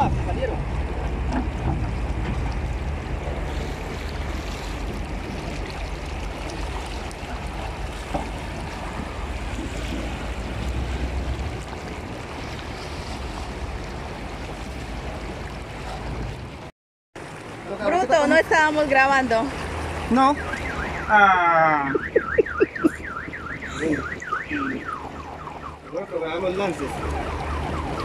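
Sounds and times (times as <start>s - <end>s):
wind rumbling on microphone: 0.0s - 16.7s
river current rushing: 0.0s - 28.0s.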